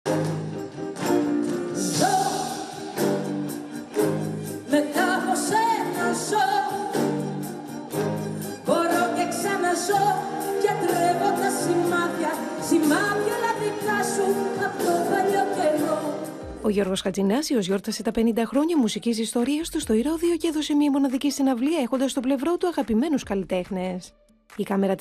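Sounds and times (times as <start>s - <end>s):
woman singing into microphone: 1.8s - 2.9s, 4.7s - 7.2s, 8.6s - 16.6s.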